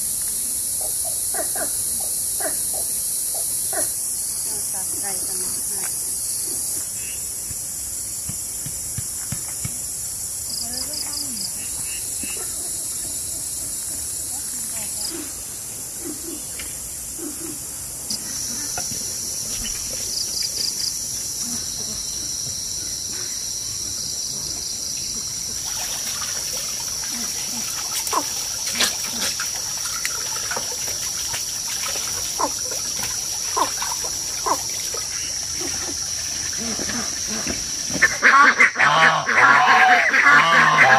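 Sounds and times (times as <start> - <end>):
water splashing: 25.4 - 38.9.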